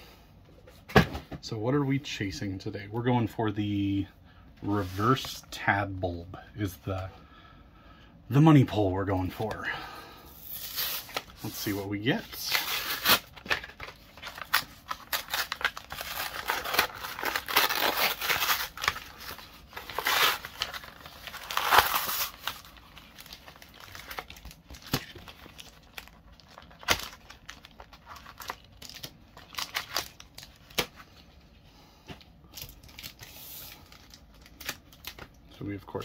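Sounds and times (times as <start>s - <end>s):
plastic crinkling: 10.4s - 31.4s
cardboard ripping: 12.3s - 30.9s.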